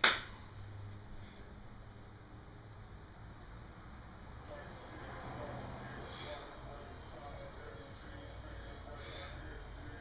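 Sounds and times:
cricket chirping: 0.4s - 10.0s.

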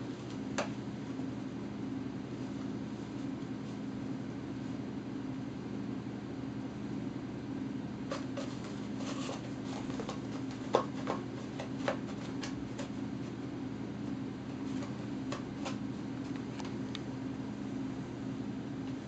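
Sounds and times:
steady low hum: 0.0s - 19.0s
paper towel roll crinkling: 8.1s - 13.4s, 14.4s - 16.8s.

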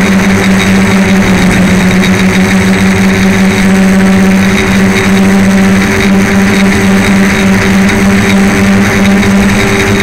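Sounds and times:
drone motors humming: 0.0s - 7.6s.

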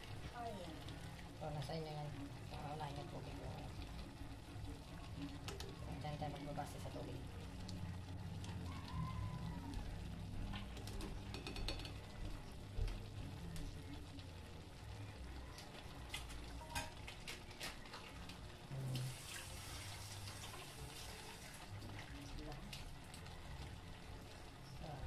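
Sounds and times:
water running from a tap: 18.7s - 23.3s.

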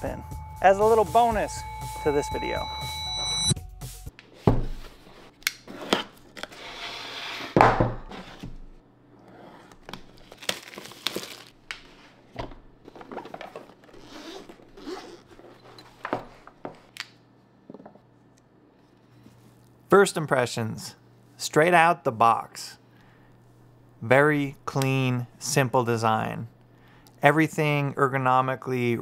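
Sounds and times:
plastic tearing: 9.7s - 11.9s
plastic wrapping crinkling: 10.0s - 12.0s.

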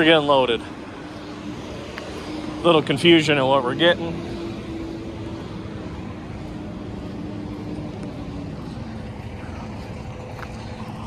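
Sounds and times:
engine running steadily: 0.0s - 11.0s.

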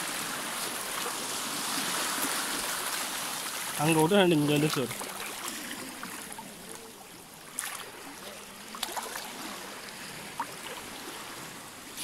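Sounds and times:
seawater washing over sand: 0.0s - 6.3s.

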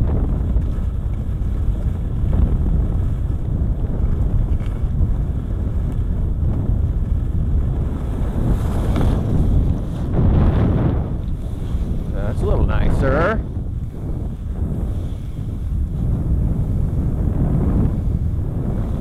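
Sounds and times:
wind buffeting microphone: 0.0s - 19.0s
skis hissing on snow: 8.0s - 10.1s, 13.9s - 16.0s.

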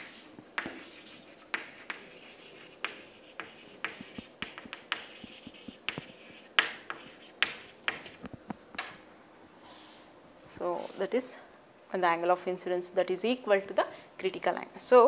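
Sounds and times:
chalk writing on chalkboard: 0.0s - 8.3s.

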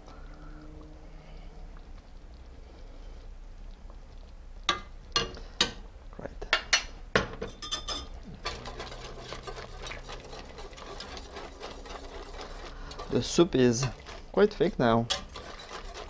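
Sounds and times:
metal utensils clinking on a pot: 6.6s - 14.2s, 14.9s - 16.0s
whisk scraping a pot: 7.7s - 16.0s.

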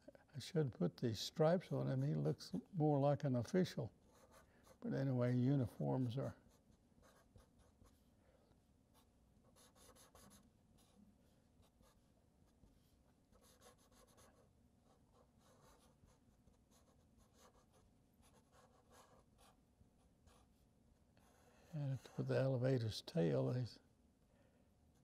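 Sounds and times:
marker scratching on paper: 6.5s - 8.1s, 8.9s - 11.0s, 12.7s - 19.6s.

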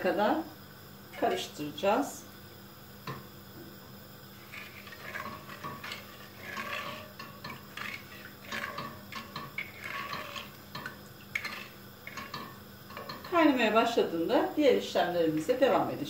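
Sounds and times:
spatula scraping a pot: 4.4s - 13.4s.

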